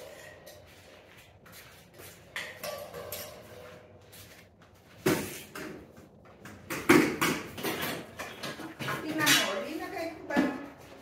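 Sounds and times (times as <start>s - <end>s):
knocks and clatter of tools: 2.0s - 4.0s, 5.0s - 11.0s.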